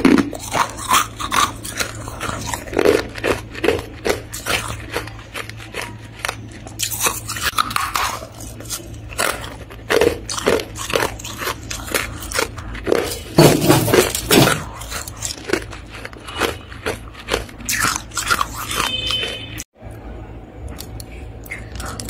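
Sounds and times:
crunchy frost being chewed: 0:00.0 - 0:19.7, 0:20.6 - 0:22.0.

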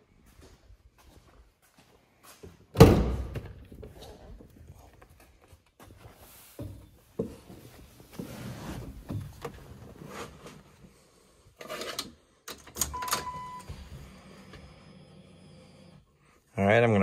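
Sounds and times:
short steady beep: 0:12.9 - 0:13.8.

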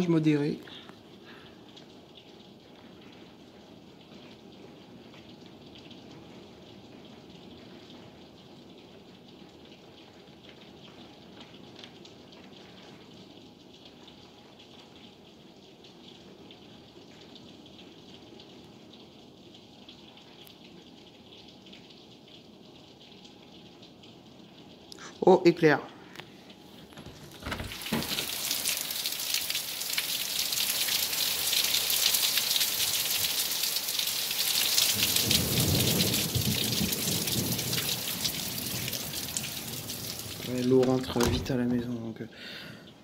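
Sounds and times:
raindrops ticking: 0:00.0 - 0:43.0
heavy rain hissing: 0:27.1 - 0:42.9.

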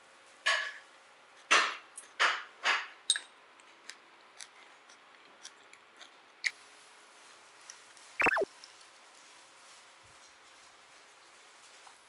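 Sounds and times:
mouth clicks: 0:08.2 - 0:08.5.

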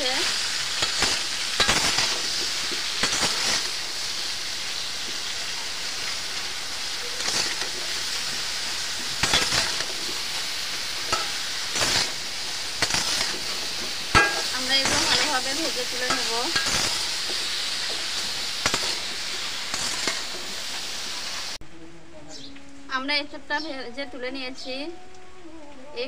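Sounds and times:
food sizzling in hot oil: 0:00.0 - 0:21.6
metal spatula scraping wok: 0:07.1 - 0:10.3, 0:11.0 - 0:21.5.

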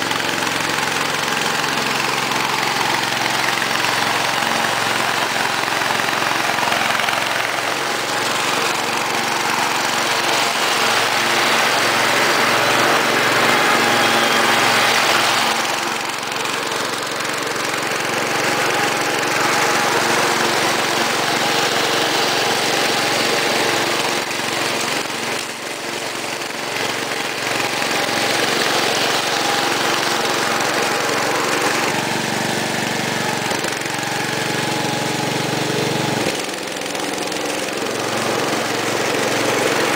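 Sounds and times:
lawn tractor engine mowing grass: 0:00.0 - 0:39.9.

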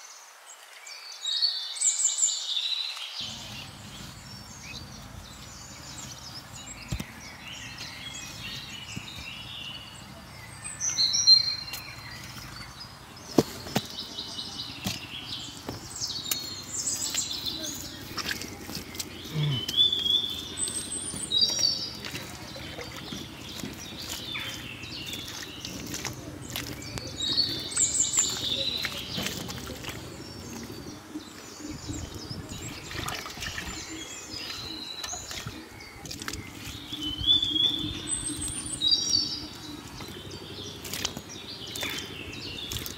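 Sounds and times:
small birds chirping: 0:00.0 - 0:42.9
hands working wet mud: 0:03.2 - 0:42.9.

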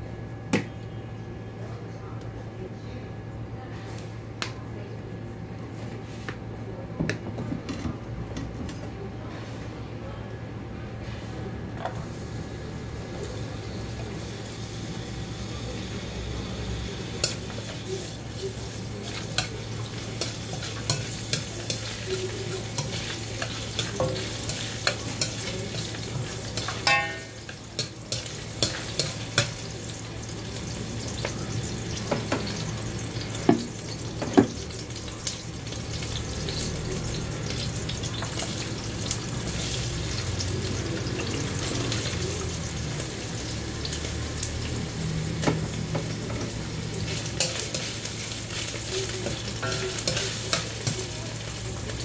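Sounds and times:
garlic sizzling in oil: 0:12.1 - 0:52.0.

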